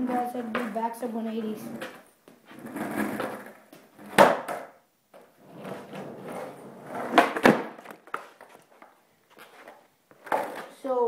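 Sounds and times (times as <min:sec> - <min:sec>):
skateboard clacking: 0:00.0 - 0:02.0, 0:02.6 - 0:08.9
skateboard wheels rolling on carpet: 0:00.0 - 0:10.8.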